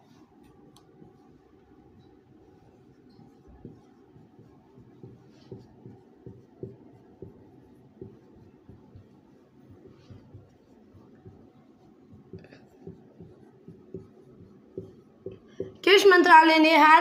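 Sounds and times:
marker tapping on whiteboard: 3.1 - 15.9.

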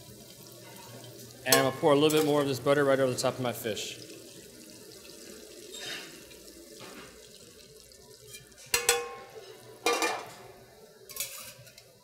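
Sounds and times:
metal spatula clanking on pan: 1.5 - 2.4, 8.4 - 10.4
butter sizzling in skillet: 4.2 - 12.0.

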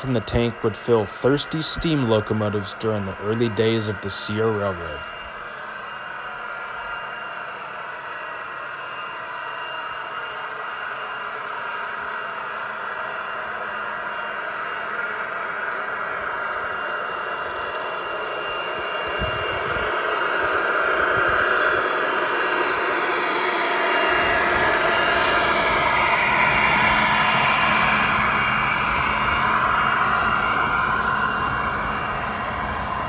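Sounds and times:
model train rushing past: 20.5 - 33.0.

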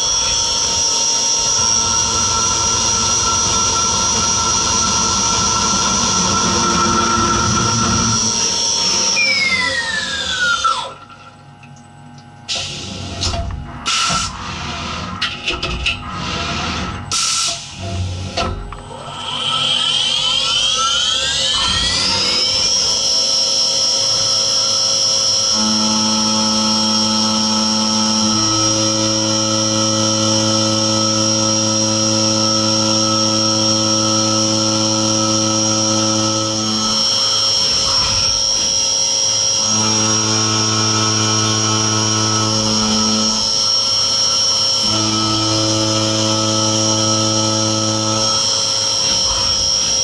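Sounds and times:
end mill cutting aluminium hum: 0.0 - 11.4, 12.7 - 50.0
machine spindle high whine: 0.0 - 11.6, 12.5 - 50.0.

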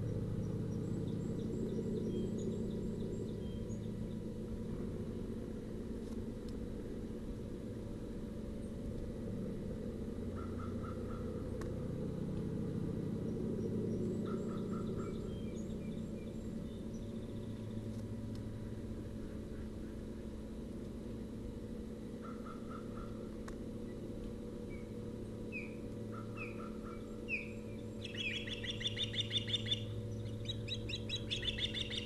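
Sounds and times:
steady low rumble: 0.0 - 32.0
ospreys chirping: 25.5 - 32.0.

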